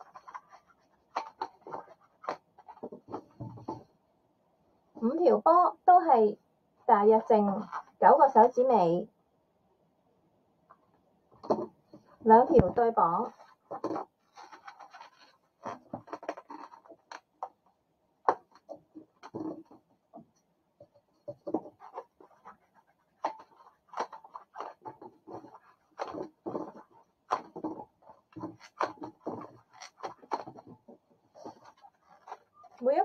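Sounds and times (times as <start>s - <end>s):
balloons squeaking and rubbing: 13.2s - 17.2s, 21.3s - 33.0s.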